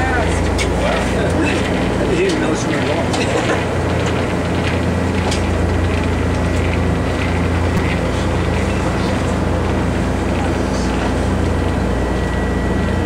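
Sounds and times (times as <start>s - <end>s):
airship engines and propellers droning: 0.0s - 13.0s.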